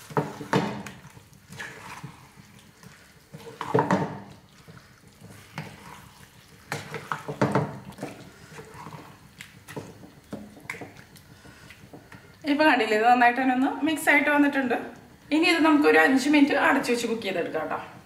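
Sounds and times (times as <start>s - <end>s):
spoon scraping and squelching paste: 0.0s - 12.4s.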